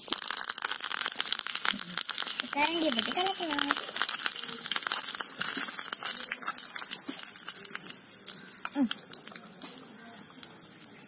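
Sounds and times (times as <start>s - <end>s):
metal spoon clinking on clay pot: 2.3s - 9.5s.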